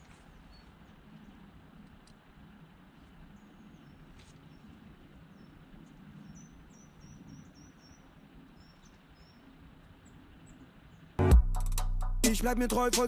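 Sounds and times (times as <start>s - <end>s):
small birds chirping: 0.0s - 2.2s, 3.0s - 11.2s
faint low background noise: 0.0s - 13.0s.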